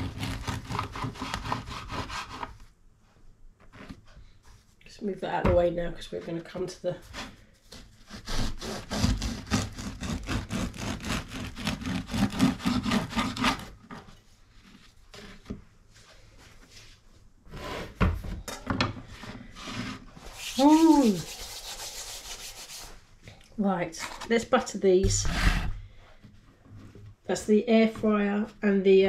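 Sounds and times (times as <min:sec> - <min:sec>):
bread knife sawing through bread: 0:00.0 - 0:02.5, 0:07.1 - 0:13.8, 0:19.5 - 0:22.9.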